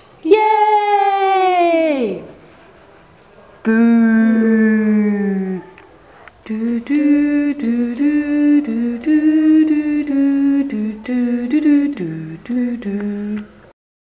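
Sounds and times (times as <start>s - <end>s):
person singing wordless tune: 3.6s - 5.8s, 6.4s - 13.7s.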